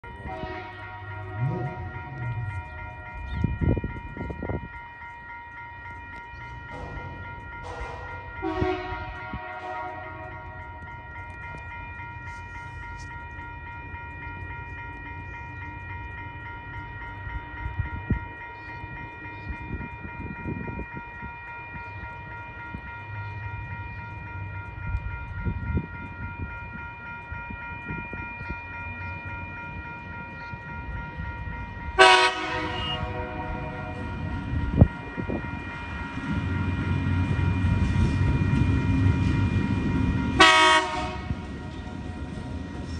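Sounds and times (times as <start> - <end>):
crossing warning bell ringing: 0.0 - 42.9
locomotive rumble: 0.0 - 42.9
train horn: 0.1 - 2.5, 7.7 - 10.6, 32.0 - 34.1, 40.4 - 41.4.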